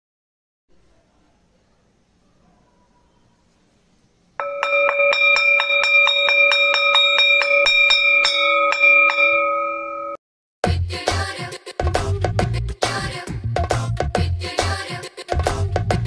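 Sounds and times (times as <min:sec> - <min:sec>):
school bell ringing rapidly: 0:04.4 - 0:10.2.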